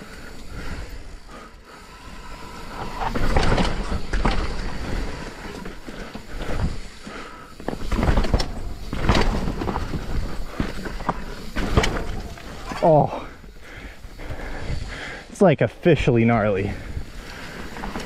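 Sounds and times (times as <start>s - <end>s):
bike knocking and rattling: 0.0s - 15.2s, 16.2s - 18.0s
tyres crunching over rock: 2.8s - 13.1s.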